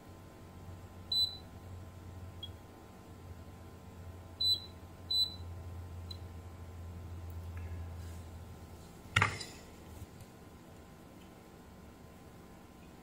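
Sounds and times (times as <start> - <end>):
steady low hum: 0.0 - 13.0
multimeter short high beeps: 1.1 - 1.4, 4.4 - 5.4.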